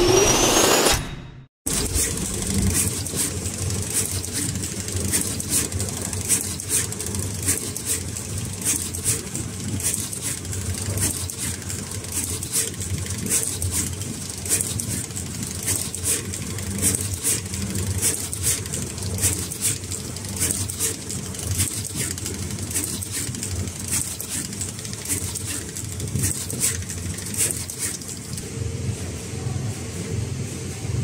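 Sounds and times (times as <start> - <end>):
machine motor hum: 0.0 - 31.0
quick ticks and hisses: 18.0 - 28.4.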